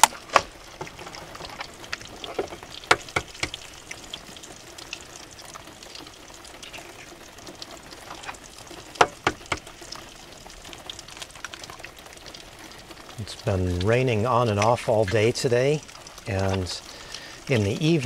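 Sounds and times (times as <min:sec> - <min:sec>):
bacon sizzling in a pan: 0:00.0 - 0:18.0
rain pattering on a roof: 0:00.0 - 0:18.0
sharp clicks and taps: 0:09.0 - 0:09.7.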